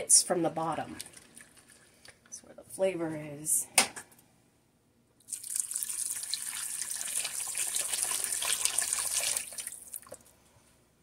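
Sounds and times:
water pouring into a pot: 5.2s - 10.2s.

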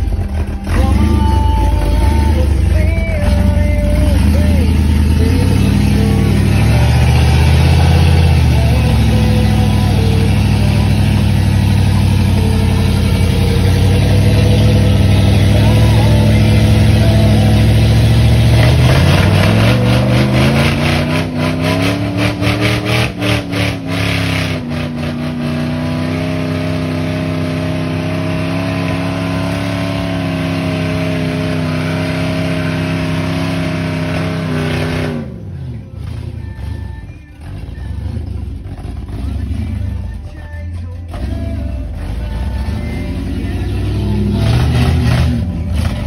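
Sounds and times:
engine labouring and revving: 0.0s - 46.0s.

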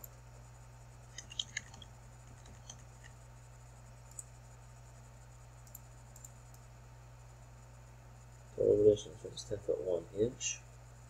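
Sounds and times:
low electrical hum: 0.0s - 11.0s
computer mouse clicks: 1.1s - 3.2s, 4.0s - 4.3s, 5.6s - 6.6s.

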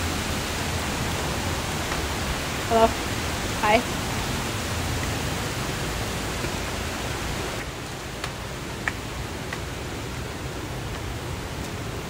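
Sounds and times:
water stream rushing: 0.0s - 12.0s
light taps: 7.6s - 9.6s.

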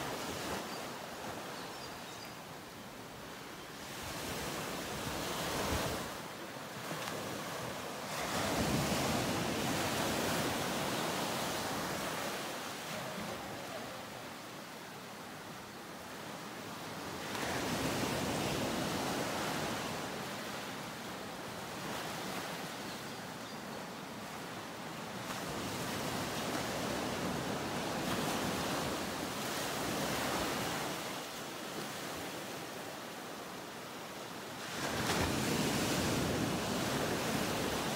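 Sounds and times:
ocean waves rushing: 0.0s - 1.4s, 3.7s - 22.7s.

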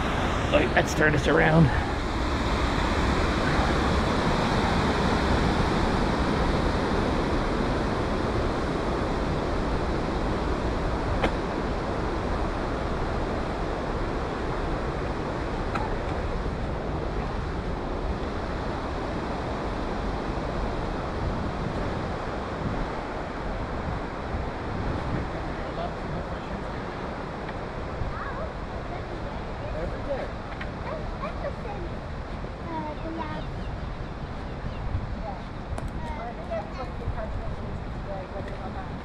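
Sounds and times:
distant road traffic: 0.0s - 6.0s
wind buffeting microphone: 0.0s - 39.0s.

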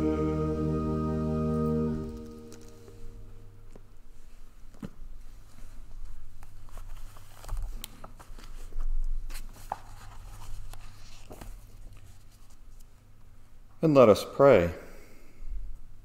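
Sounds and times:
low steady hum: 0.0s - 7.6s
pages rustling: 4.7s - 12.9s.

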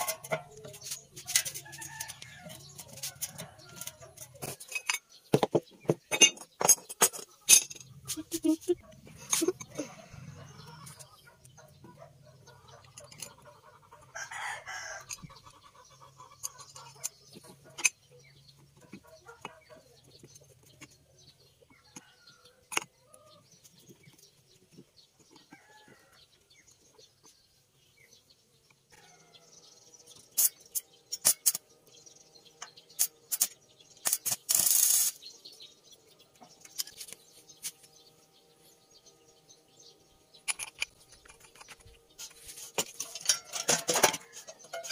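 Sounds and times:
metal parts clicking and knocking: 0.0s - 8.6s, 30.1s - 31.6s, 32.6s - 35.2s, 40.4s - 44.9s
chickens clucking: 7.0s - 23.4s
rooster crowing: 14.1s - 15.1s
scraping metal rattle: 40.4s - 44.9s.

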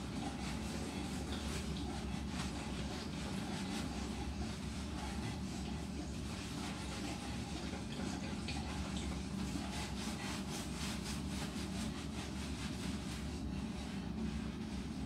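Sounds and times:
hands scrubbing wet dog coat: 0.0s - 15.0s
steady low hum: 0.0s - 15.0s.

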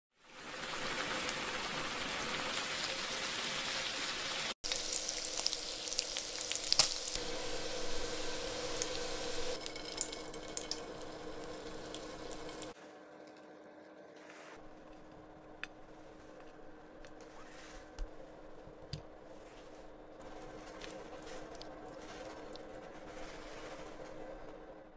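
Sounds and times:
bacon sizzling in a pan: 0.2s - 12.8s.

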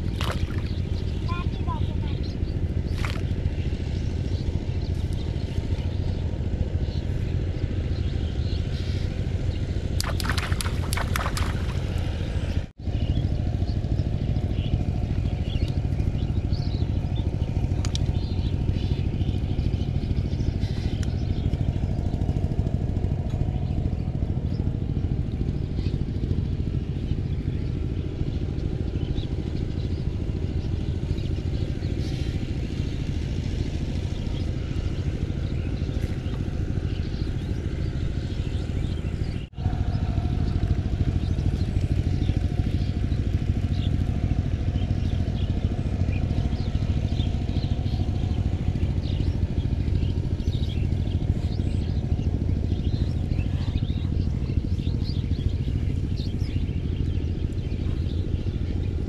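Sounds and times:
low engine-like hum: 0.0s - 59.0s.

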